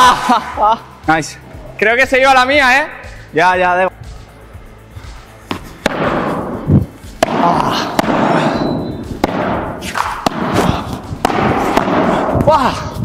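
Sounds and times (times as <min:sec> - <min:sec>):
ball struck with rackets: 0:05.5 - 0:12.5.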